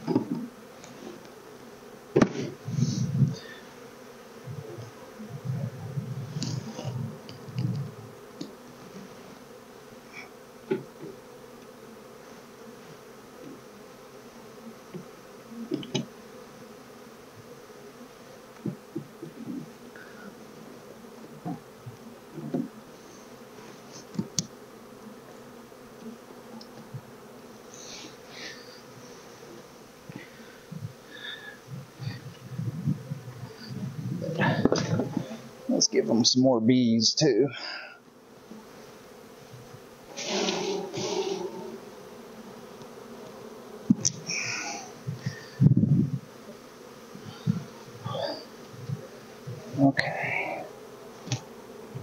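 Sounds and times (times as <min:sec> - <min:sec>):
honeybees buzzing: 0:00.0 - 0:52.0
wooden hive frames knocking: 0:02.1 - 0:02.6, 0:10.6 - 0:11.3, 0:18.6 - 0:19.7, 0:21.3 - 0:22.8, 0:34.3 - 0:35.9, 0:43.8 - 0:44.3.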